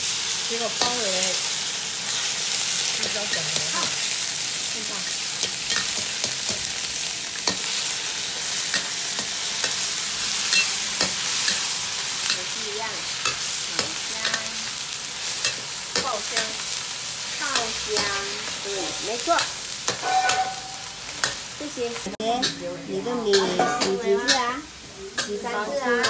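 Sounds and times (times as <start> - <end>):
mushrooms sizzling in oil: 0.0 - 26.0
spatula clacking and scraping pan: 5.0 - 6.8, 7.4 - 12.6, 13.2 - 14.6, 15.3 - 16.7, 17.4 - 21.5, 23.3 - 24.5.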